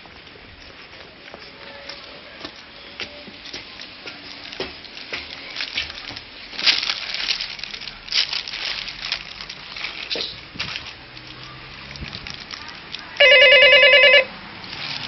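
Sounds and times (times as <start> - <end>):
paper rustling and crinkling: 3.4 - 13.2, 14.6 - 15.0.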